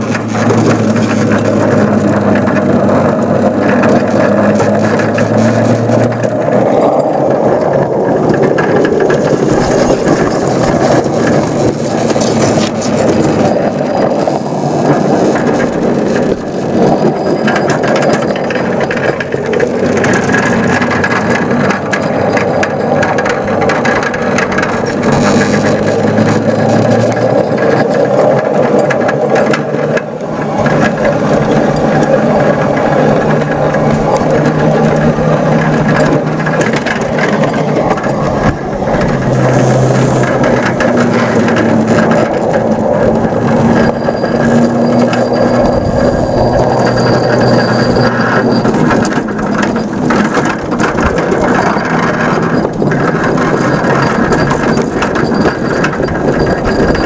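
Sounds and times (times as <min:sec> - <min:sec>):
drive hum: 0:00.0 - 0:57.0
model locomotive running: 0:00.0 - 0:57.0
wheels clicking on rails: 0:00.0 - 0:57.0.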